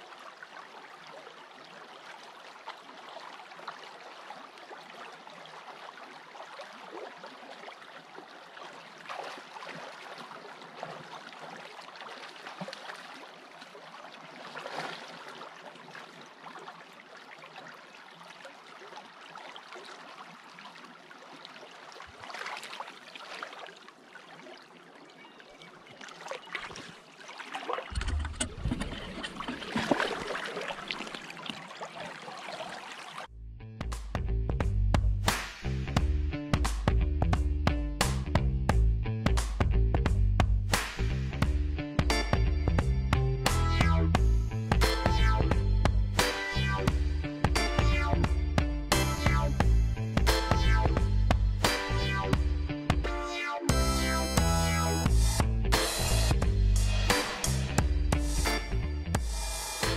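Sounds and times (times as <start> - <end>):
creek water rushing: 0.0 - 33.3
water splashes: 0.0 - 33.3.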